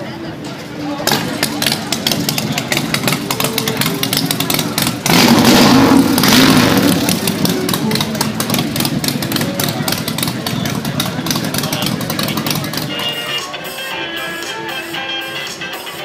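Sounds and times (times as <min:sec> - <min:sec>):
outdoor crowd noise: 0:00.0 - 0:16.0
clatter: 0:01.1 - 0:12.9
motorcycle engine revving: 0:01.1 - 0:13.1.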